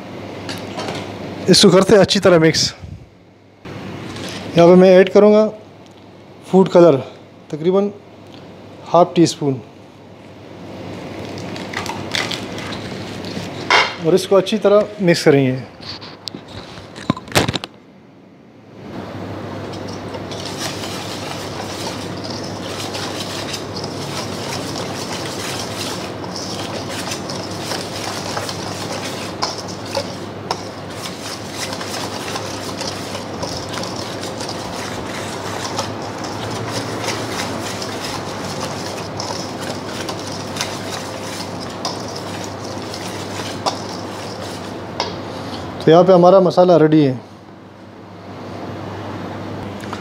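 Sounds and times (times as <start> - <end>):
whisk rattling in metal bowl: 19.7 - 44.8.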